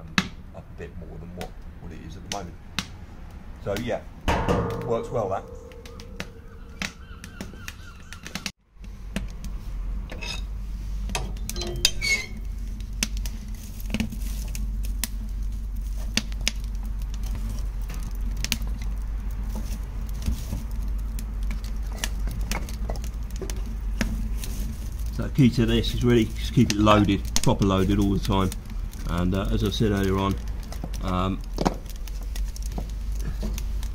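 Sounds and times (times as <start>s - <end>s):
wood fire crackling and popping: 0.0s - 33.9s
steady low rumble: 4.1s - 7.0s.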